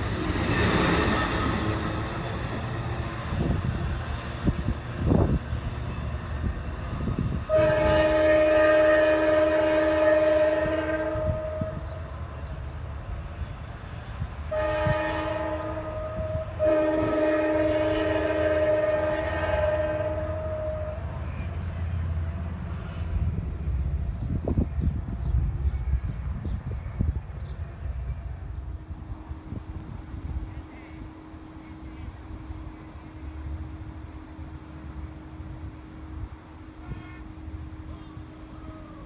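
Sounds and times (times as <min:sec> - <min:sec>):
low rumble of departing train: 0:00.0 - 0:39.0
train air horn blasts: 0:07.4 - 0:12.2, 0:14.5 - 0:21.5, 0:36.1 - 0:38.9.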